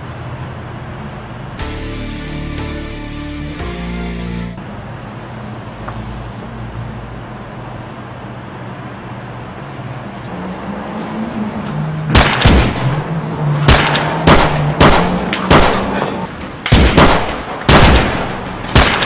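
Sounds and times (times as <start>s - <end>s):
background music low held notes: 1.6s - 4.6s
gunshots: 12.1s - 19.0s.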